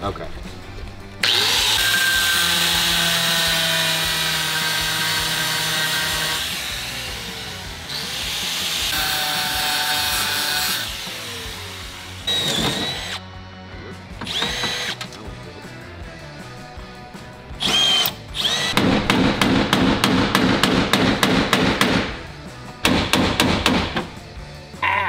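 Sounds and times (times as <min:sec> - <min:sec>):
cordless drill drilling rivets: 0:12.2 - 0:13.2, 0:14.2 - 0:15.2.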